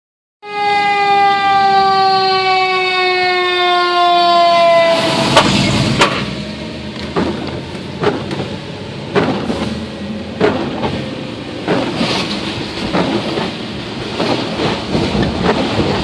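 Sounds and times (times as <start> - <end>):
fire truck siren wailing: 0.4 - 11.7
sharp knocks: 7.0 - 9.6, 10.4 - 11.0, 11.6 - 12.2.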